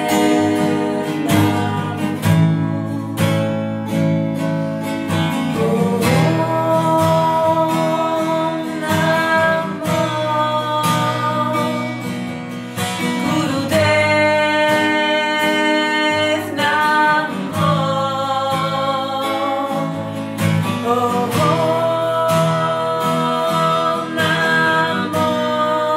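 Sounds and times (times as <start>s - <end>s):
acoustic guitar strumming: 0.0s - 25.9s
women singing a chant: 5.6s - 11.9s.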